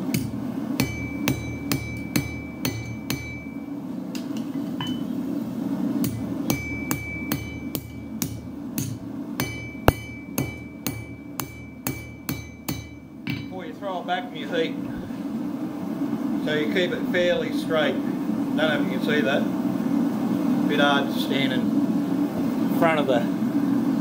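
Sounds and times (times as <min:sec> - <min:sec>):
hammer striking metal on anvil: 0:00.0 - 0:05.1, 0:06.0 - 0:13.6
metallic anvil ring: 0:00.8 - 0:05.1, 0:06.0 - 0:13.6.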